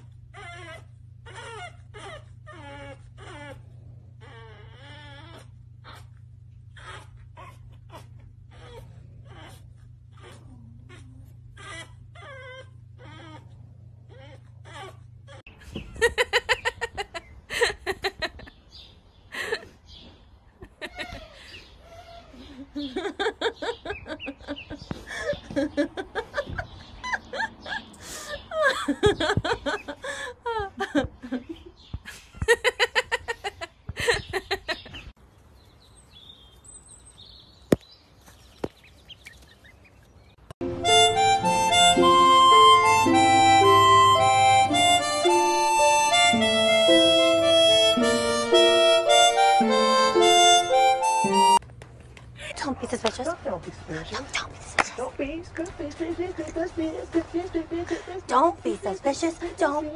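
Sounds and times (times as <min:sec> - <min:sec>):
puppy whining and whimpering: 0:00.0 - 0:15.6, 0:20.9 - 0:22.8, 0:40.9 - 0:50.1
ducklings peeping: 0:21.4 - 0:29.9, 0:36.1 - 0:51.6.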